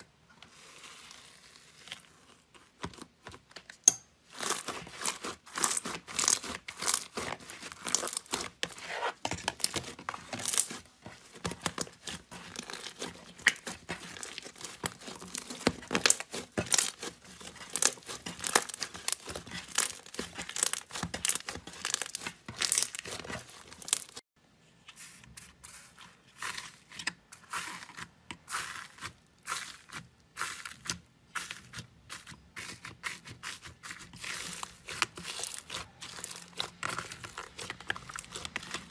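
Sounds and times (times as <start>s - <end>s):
slime crackling and popping: 4.4s - 8.5s, 11.4s - 24.2s, 34.1s - 38.9s.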